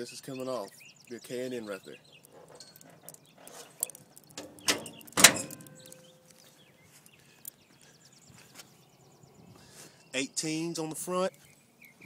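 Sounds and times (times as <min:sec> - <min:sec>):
truck hood slamming: 0:04.4 - 0:05.8.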